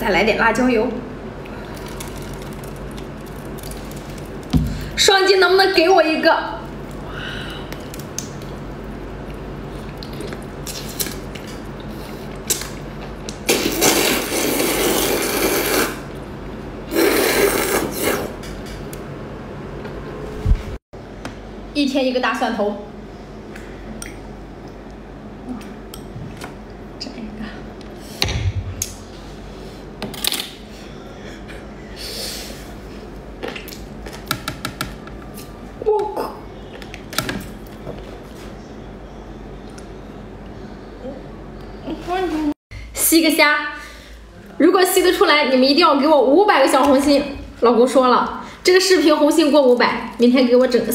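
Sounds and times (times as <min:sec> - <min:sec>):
low steady hum: 0:00.0 - 0:14.8
wet slurping: 0:11.8 - 0:16.0, 0:16.9 - 0:18.4.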